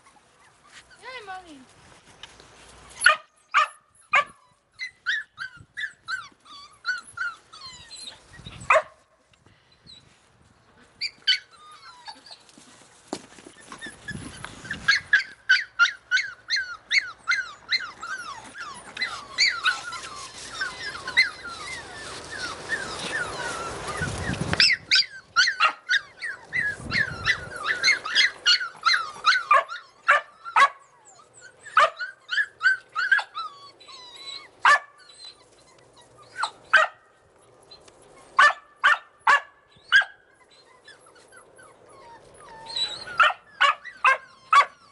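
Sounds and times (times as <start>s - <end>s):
puppies yipping and whining: 0.0s - 1.4s, 2.8s - 44.9s.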